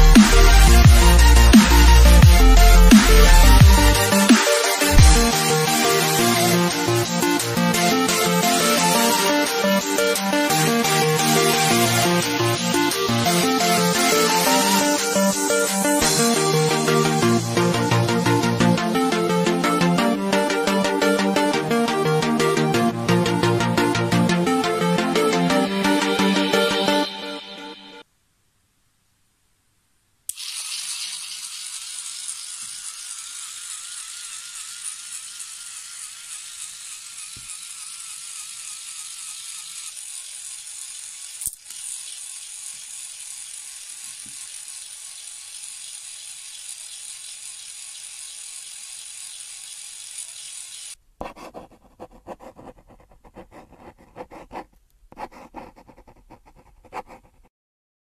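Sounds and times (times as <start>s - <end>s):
small motors whining: 0.0s - 18.6s, 30.3s - 51.0s
seeds rattling between rollers: 30.4s - 51.0s.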